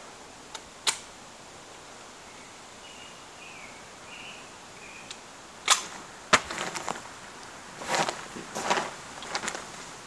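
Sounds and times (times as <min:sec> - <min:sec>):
shotgun metallic clicks: 0:00.5 - 0:01.1, 0:05.1 - 0:05.9.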